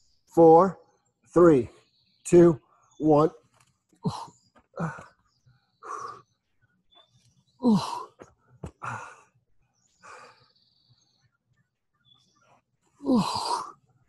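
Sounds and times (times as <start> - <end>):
man breathing hard: 5.8 - 6.3, 7.6 - 9.4, 10.0 - 10.6.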